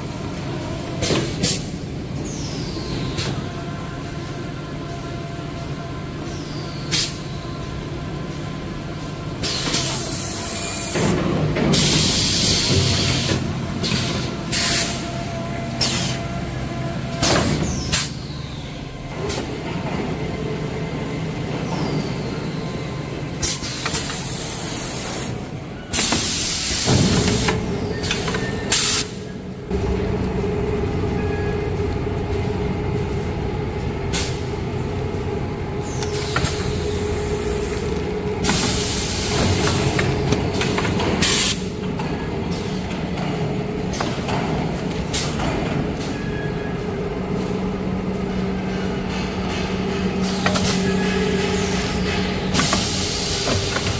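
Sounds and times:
pneumatic air hisses: 9.4s - 11.0s, 11.7s - 15.0s, 23.4s - 29.3s, 38.4s - 39.9s, 50.2s - 53.9s
machine humming: 29.1s - 45.1s.

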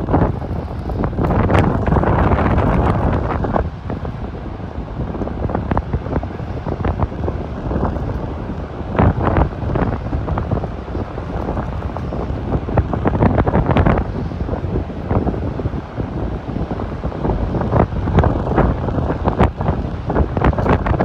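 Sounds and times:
strong wind buffeting microphone: 0.0s - 21.0s.

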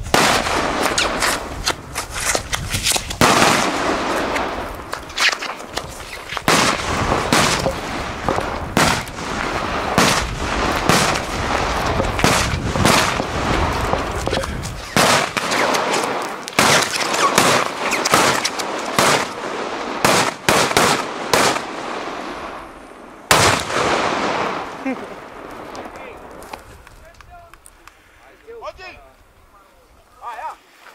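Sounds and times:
firecracker bangs: 0.0s - 1.6s, 3.1s - 4.9s, 6.4s - 21.7s, 23.3s - 24.8s
firecrackers crackling: 0.0s - 28.5s.

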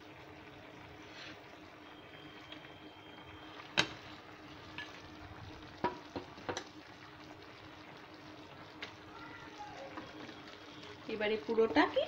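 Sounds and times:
sauce bubbling in a pan: 0.0s - 12.0s
knocks on a pan: 5.8s - 6.6s.

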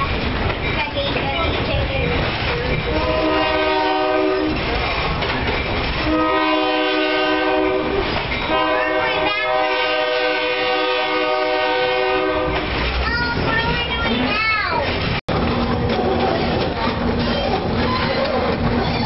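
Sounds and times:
train rumble and wheel clatter: 0.0s - 19.0s
locomotive air horn blasts: 2.9s - 4.6s, 6.0s - 12.8s.

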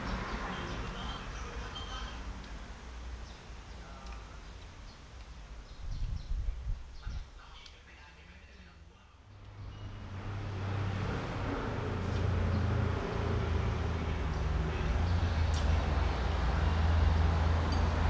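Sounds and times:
vehicle engine rumble: 0.0s - 8.0s, 8.7s - 18.0s.

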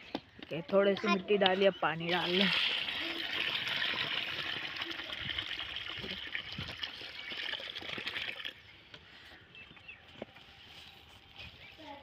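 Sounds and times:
water pouring onto soil: 2.1s - 8.7s.

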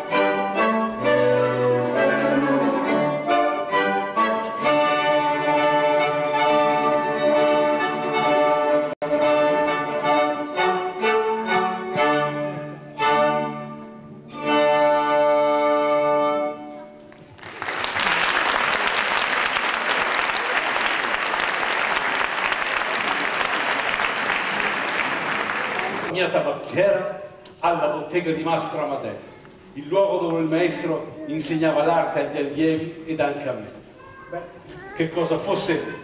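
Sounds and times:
string ensemble playing: 0.0s - 26.4s
audience applause: 17.1s - 26.1s.

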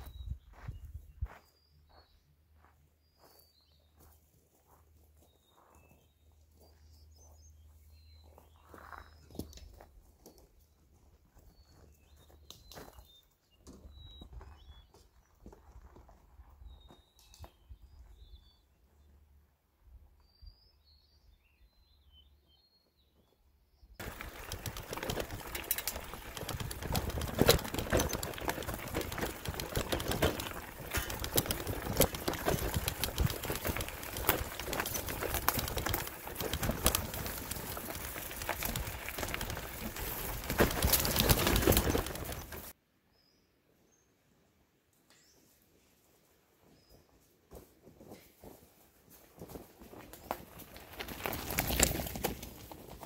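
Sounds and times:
faint bird chirps: 0.0s - 10.5s
bicycle rattling on rough road: 24.0s - 42.8s, 49.4s - 53.0s.

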